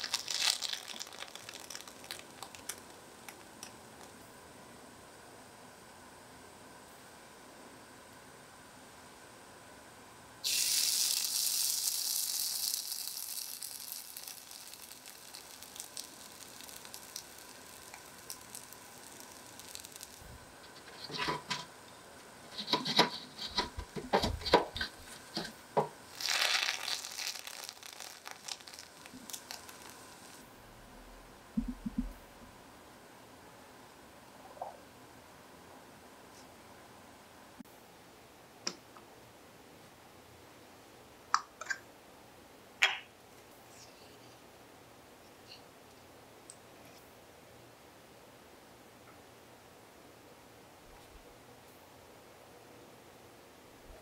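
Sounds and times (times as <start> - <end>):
batter sizzling in a skillet: 10.4 - 20.3, 24.8 - 30.4.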